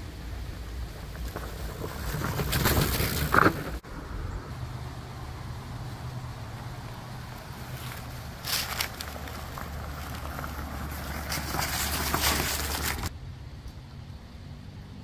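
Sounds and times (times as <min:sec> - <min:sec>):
bike tires rolling over dry leaves: 0:00.7 - 0:03.8, 0:06.2 - 0:13.1.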